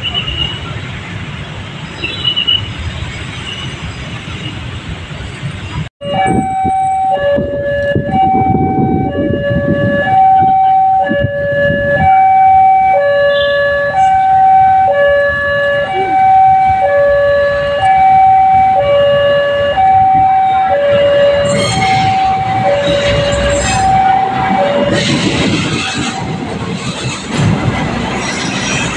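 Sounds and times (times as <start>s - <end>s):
level crossing two-tone alarm: 6.0s - 25.4s.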